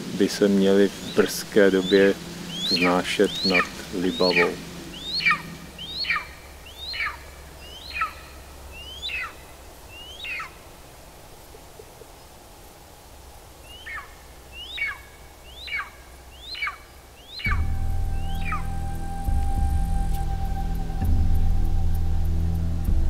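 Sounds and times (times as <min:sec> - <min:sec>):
eagle yelping calls: 0:00.7 - 0:10.7, 0:13.6 - 0:21.1.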